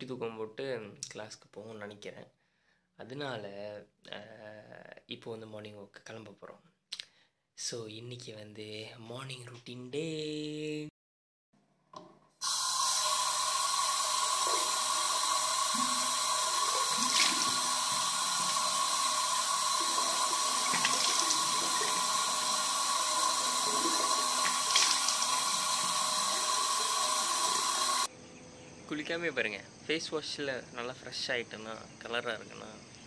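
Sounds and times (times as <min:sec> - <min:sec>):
sink tap running: 0:12.4 - 0:28.1
hands splashing water: 0:15.8 - 0:26.5.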